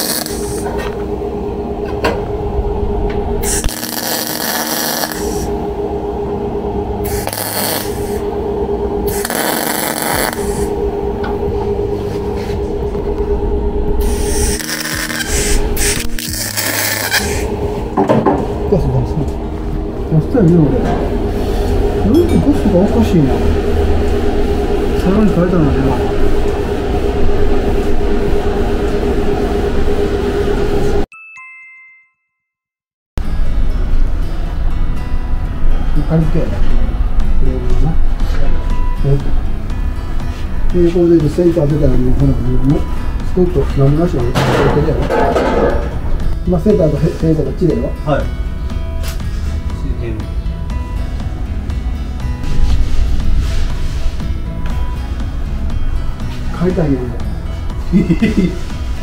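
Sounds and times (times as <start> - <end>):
welder arc crackling: 0.0 - 1.0, 2.3 - 6.1, 6.8 - 17.9
shop noise with low hum: 0.0 - 31.1, 33.2 - 59.0
two-note chime jingle: 22.0 - 22.7, 31.1 - 32.5.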